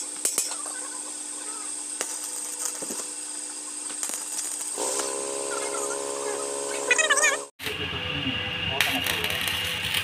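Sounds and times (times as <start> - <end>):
welding arc buzzing hiss: 0.0 - 7.5.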